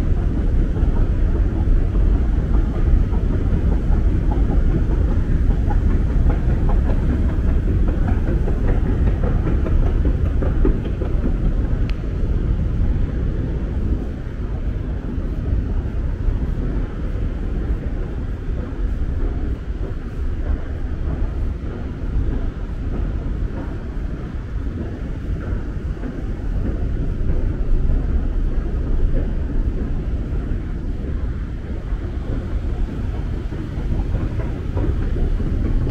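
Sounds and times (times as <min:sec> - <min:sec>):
low rumble of trains and machinery: 0:00.0 - 0:35.9.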